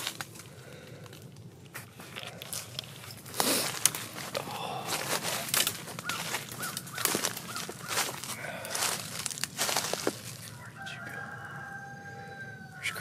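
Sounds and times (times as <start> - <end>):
footsteps crunching dry leaves: 1.8 - 11.9
bird calls: 4.4 - 13.0.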